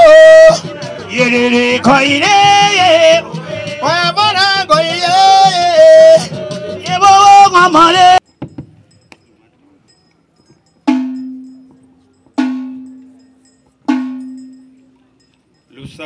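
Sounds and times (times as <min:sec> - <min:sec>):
solo voice singing: 0:00.0 - 0:08.2.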